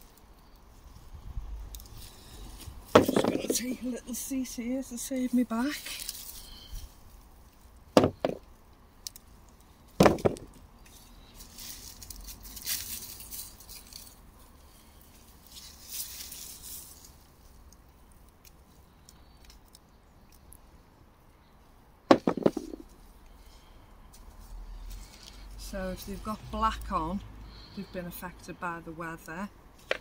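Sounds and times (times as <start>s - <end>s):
hands rustling through straw and soil: 0.0s - 7.7s, 10.8s - 19.6s, 22.7s - 25.6s
sharp knocks: 8.0s - 8.4s, 22.1s - 22.8s.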